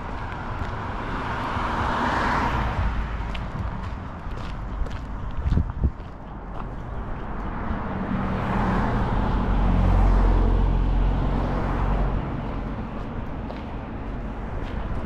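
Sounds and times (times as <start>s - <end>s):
car driving past: 7.3s - 12.7s.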